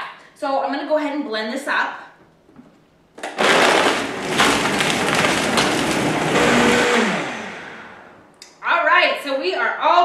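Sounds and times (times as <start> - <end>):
blender crushing ice: 3.2 - 8.2
motor winding down whine: 5.0 - 8.2.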